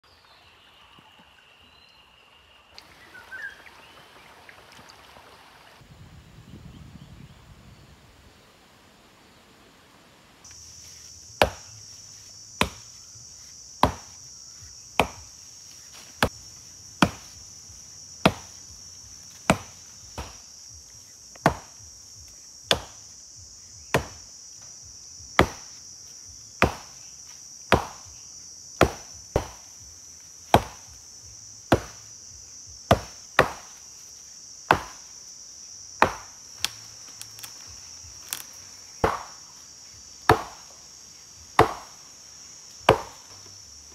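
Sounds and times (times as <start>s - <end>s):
high drone of insects: 0.0s - 43.9s
axe chopping tree trunk: 11.3s - 11.7s, 12.6s - 14.2s, 15.0s - 16.4s, 17.0s - 17.4s, 18.2s - 20.5s, 21.3s - 21.8s, 22.7s - 23.1s, 23.8s - 24.3s, 25.3s - 25.8s, 26.6s - 27.1s, 27.7s - 28.1s, 28.8s - 29.8s, 30.4s - 31.0s, 31.6s - 32.1s, 32.9s - 33.8s, 34.7s - 35.1s, 36.0s - 39.5s, 40.2s - 40.8s, 41.5s - 42.0s, 42.7s - 43.4s.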